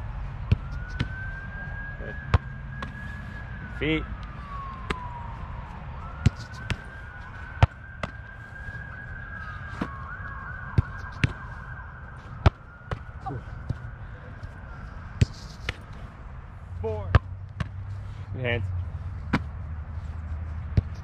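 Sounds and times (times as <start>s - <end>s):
siren wailing: 0.0s - 17.2s
soccer ball thuds: 0.4s - 1.2s, 2.2s - 3.0s, 6.2s - 8.3s, 9.7s - 10.1s, 10.7s - 11.5s, 12.3s - 13.8s, 15.2s - 16.0s, 17.0s - 17.8s, 19.2s - 19.6s, 20.6s - 21.0s.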